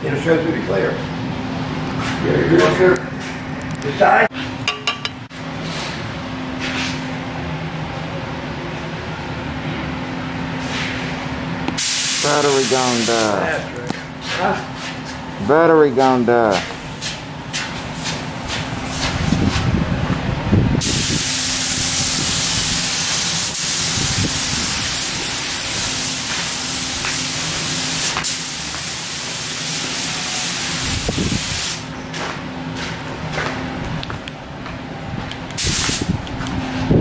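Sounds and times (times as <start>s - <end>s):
paint spray gun hissing: 11.7s - 13.4s, 20.8s - 31.9s, 35.6s - 36.1s.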